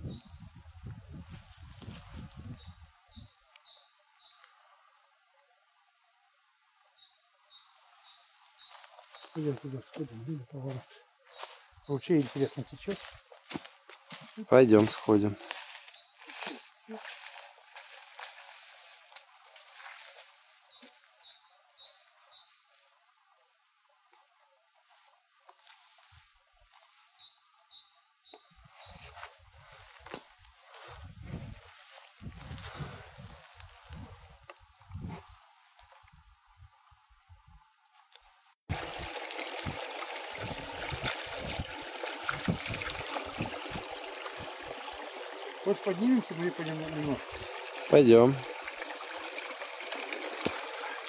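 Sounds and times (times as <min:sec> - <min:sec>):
small songbird singing: 0:00.0 - 0:00.5, 0:02.2 - 0:04.5, 0:06.7 - 0:13.2, 0:15.0 - 0:16.8, 0:20.4 - 0:22.6, 0:26.9 - 0:29.1
faint outdoor hiss: 0:00.0 - 0:31.0, 0:31.6 - 0:51.0
footsteps in dry grass: 0:00.5 - 0:02.7, 0:08.4 - 0:21.1, 0:24.9 - 0:27.2, 0:28.7 - 0:36.2.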